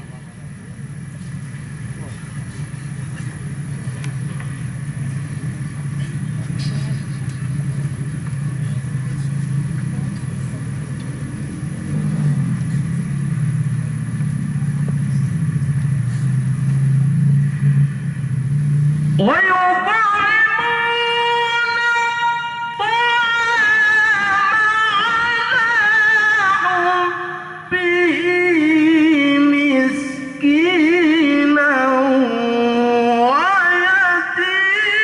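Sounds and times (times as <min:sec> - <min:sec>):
low steady rumble: 0:00.0 - 0:35.0
man reciting over loudspeaker: 0:19.2 - 0:35.0.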